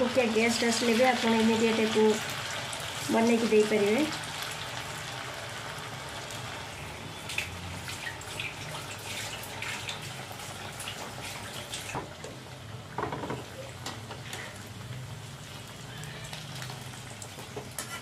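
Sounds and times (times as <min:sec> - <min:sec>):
patty sizzling in hot oil: 0:00.0 - 0:18.0
oil popping and crackling: 0:07.2 - 0:17.9.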